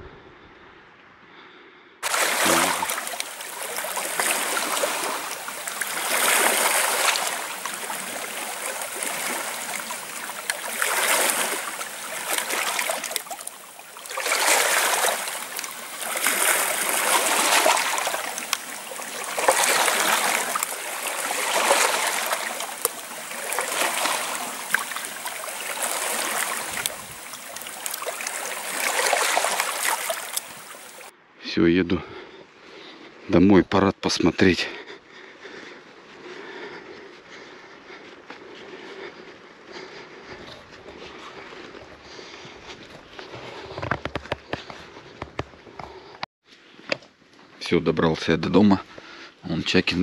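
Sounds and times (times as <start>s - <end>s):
small waves washing on shore: 2.0s - 31.1s.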